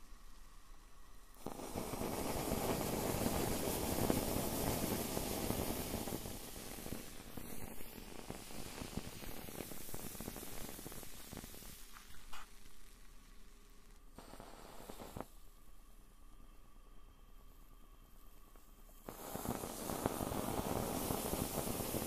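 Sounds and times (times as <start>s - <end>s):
crackling and sizzling: 0.0s - 22.0s
marshmallows hissing over flame: 1.4s - 15.3s, 19.0s - 22.0s.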